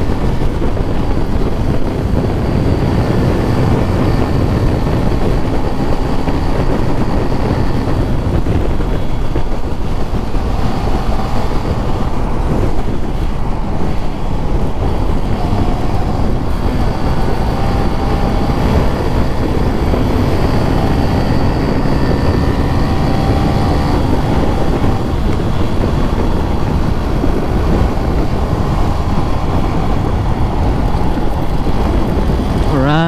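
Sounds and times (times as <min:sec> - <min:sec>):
faint engine whine: 0:00.0 - 0:33.0
wind rushing over microphone: 0:00.0 - 0:33.0.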